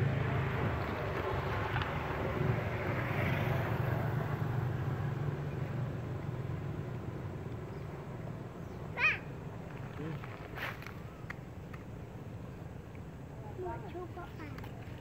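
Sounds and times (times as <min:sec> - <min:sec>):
passing motor vehicle engine rumble: 0:00.0 - 0:15.0.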